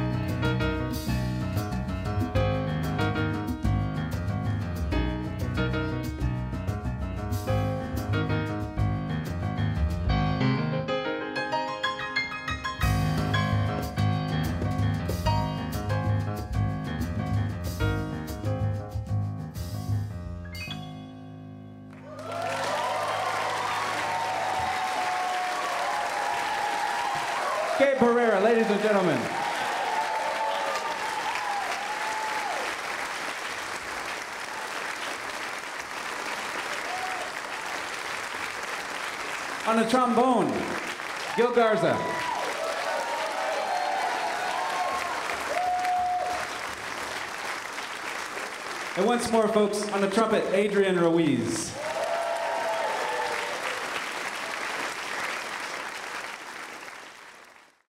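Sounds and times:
crowd cheering: 21.9s - 50.4s, 51.6s - 57.8s
audience applauding: 21.9s - 57.9s.

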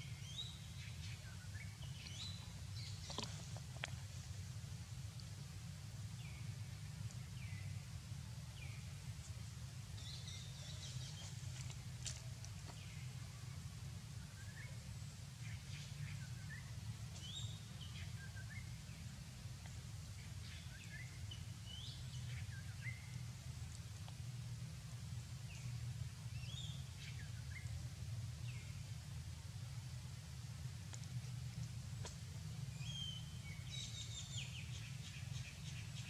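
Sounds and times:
low background rumble: 0.0s - 36.0s
birds chirping: 10.0s - 13.5s.

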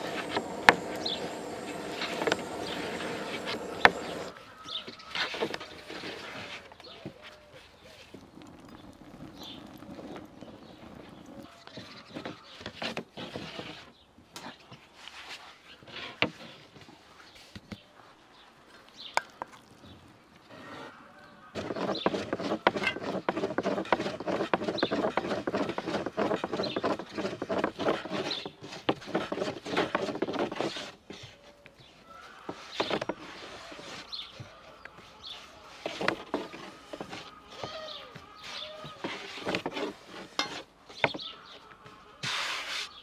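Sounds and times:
rolling pin on wooden board: 0.0s - 4.3s, 21.6s - 31.3s, 32.5s - 34.0s, 35.7s - 37.8s, 38.9s - 41.2s
birds chirping: 0.0s - 5.8s, 6.6s - 12.8s, 31.8s - 39.8s, 40.9s - 42.2s.

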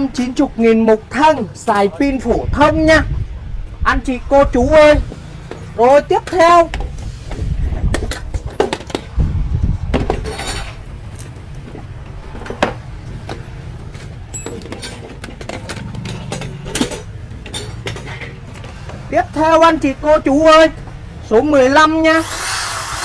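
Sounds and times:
power tools clinking and knocking: 8.0s - 9.2s, 11.7s - 19.1s.

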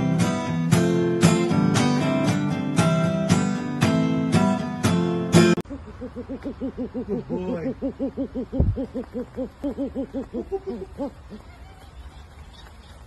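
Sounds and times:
owl hooting: 5.6s - 11.4s.

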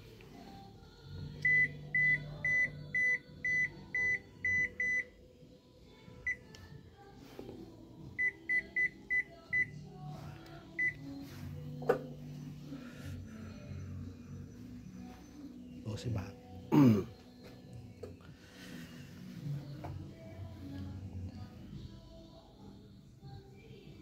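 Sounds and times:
washing machine panel beeps: 1.4s - 5.1s, 8.2s - 9.8s, 10.8s - 11.0s.

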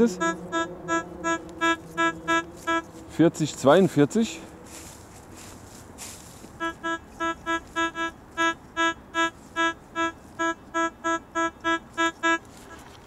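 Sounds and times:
metal detector beeping: 0.0s - 3.0s, 6.6s - 12.9s.

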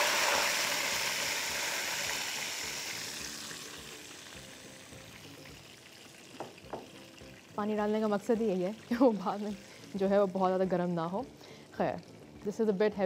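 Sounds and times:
spices sizzling: 0.0s - 13.0s
water hissing in hot oil: 0.0s - 13.0s.

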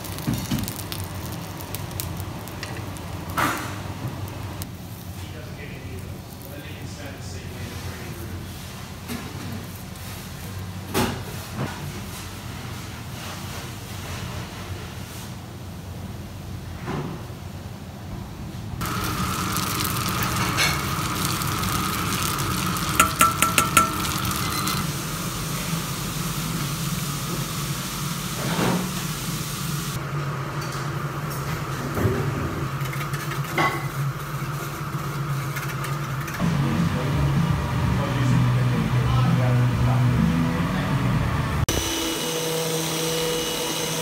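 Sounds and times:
hum and hiss of equipment: 18.6s - 31.7s
knocks and clinks: 23.0s - 24.8s.

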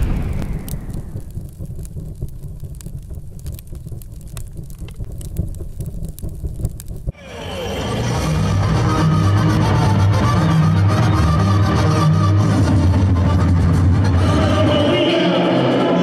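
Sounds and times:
explosion boom with low rumble: 0.0s - 7.2s
crackles like burning embers: 0.0s - 9.4s
music: 7.2s - 16.0s.

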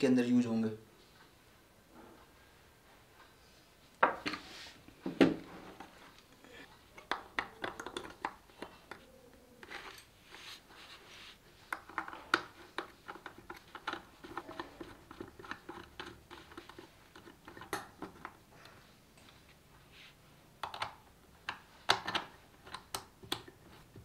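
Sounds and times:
plastic parts clicking and rattling: 11.7s - 18.4s, 20.6s - 24.0s.

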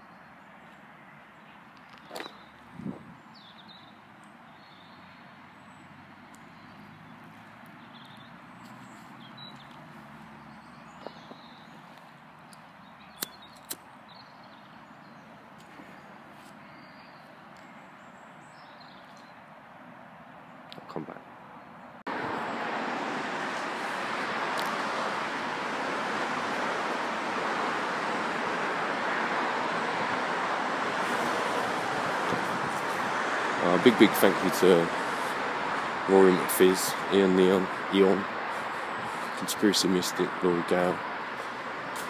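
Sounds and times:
faint bird chirps: 10.4s - 12.0s.

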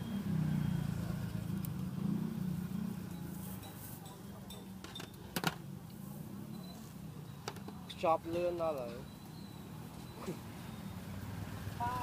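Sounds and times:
street traffic rumble: 0.0s - 12.0s
utensils clinking on metal pots: 3.6s - 5.2s.

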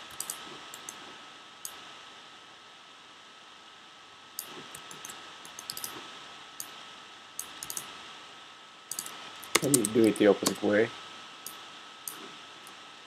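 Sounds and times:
faint steady hiss with whine: 0.0s - 13.0s
mouse and keyboard clicks: 0.1s - 1.0s, 4.4s - 6.0s, 7.4s - 7.9s, 8.9s - 10.6s.

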